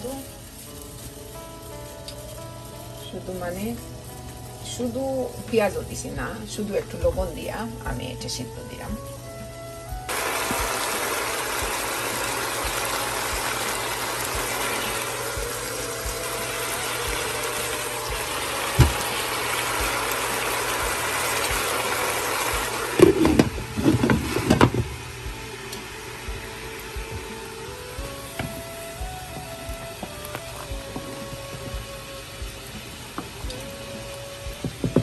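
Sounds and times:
pots boiling hard: 9.0 - 35.0
pot lid clattering: 23.0 - 24.8.

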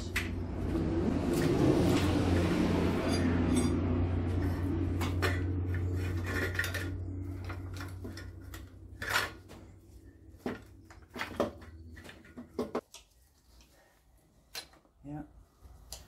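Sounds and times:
low steady hum: 0.0 - 14.0
metallic clinks of engine parts: 4.4 - 9.8.

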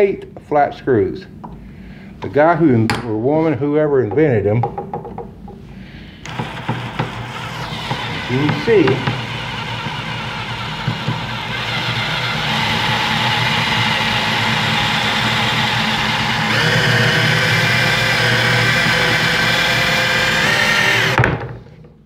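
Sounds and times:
power drill boring into screw: 6.2 - 21.2.

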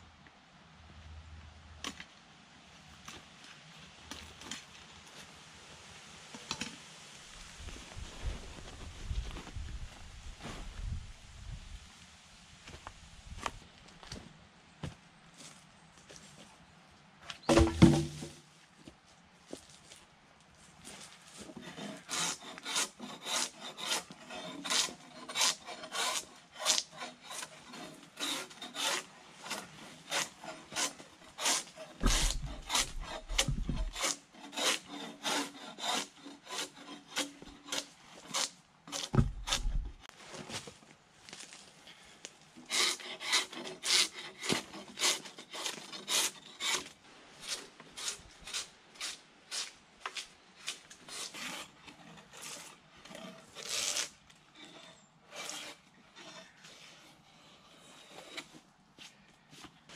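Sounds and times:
drawknife scraping bark off log: 21.5 - 40.1, 42.6 - 58.6.

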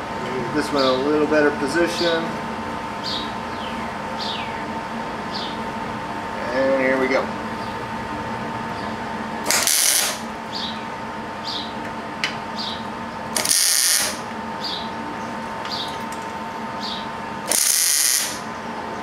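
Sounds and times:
steady hum: 0.0 - 19.0
welding arc sizzling: 9.4 - 10.4, 13.3 - 14.3, 17.4 - 18.5.

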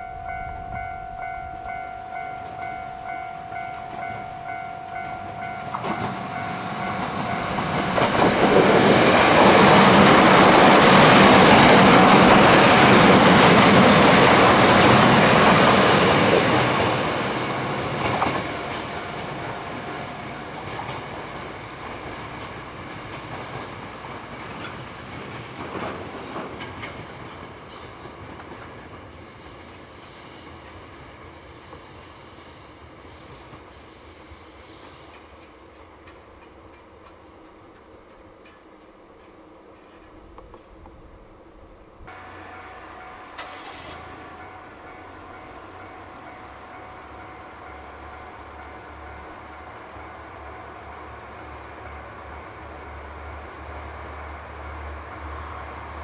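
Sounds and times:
level-crossing bell ringing: 0.0 - 7.9
diesel railcar passing: 0.0 - 56.0.

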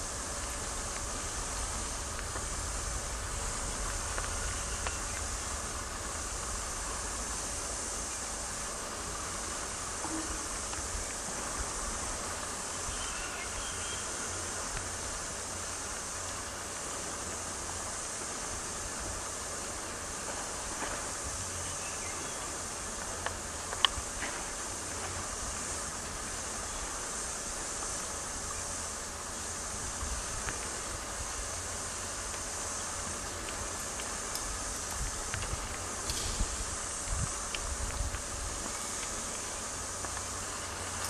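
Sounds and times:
wind buffeting microphone: 0.0 - 8.0, 34.6 - 39.2
steady high-pitched hiss: 0.0 - 41.0.

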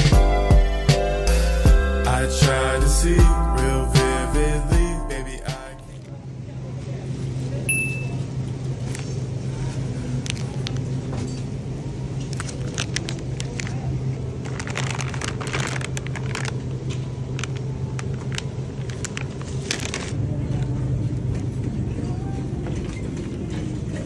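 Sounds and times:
freezer cases humming: 9.8 - 24.0
plastic packages crinkling: 12.2 - 20.2.

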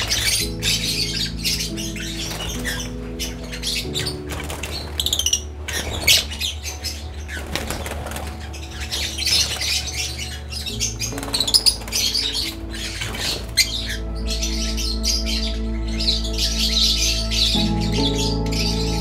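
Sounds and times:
soft background music: 0.0 - 19.0
birds flapping wings: 3.9 - 6.5, 7.2 - 10.3, 11.0 - 14.0.

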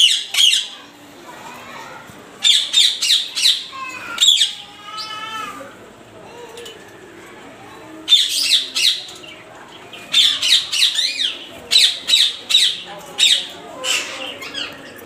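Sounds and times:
parakeets screeching: 0.0 - 0.8, 2.4 - 5.5, 8.1 - 15.0.

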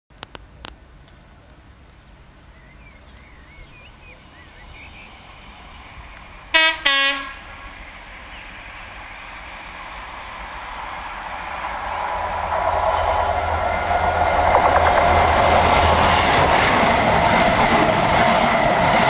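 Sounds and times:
train rumble in tunnel: 2.2 - 19.0
two-tone train air horn: 6.5 - 7.5.

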